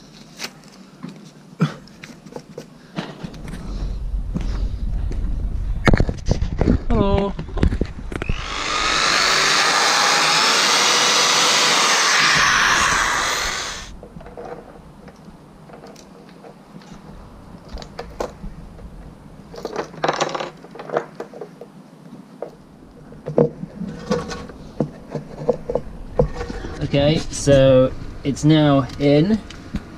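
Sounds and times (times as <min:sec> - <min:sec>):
power tool sanding boat hull: 0:08.2 - 0:13.9.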